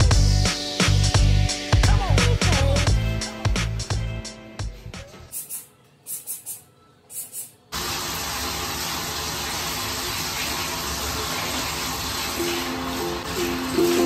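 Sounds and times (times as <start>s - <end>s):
spray bottle hisses: 5.3s - 7.6s.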